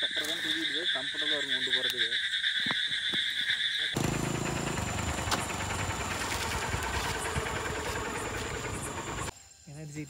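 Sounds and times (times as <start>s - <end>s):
motorcycle engine running: 4.0s - 9.3s.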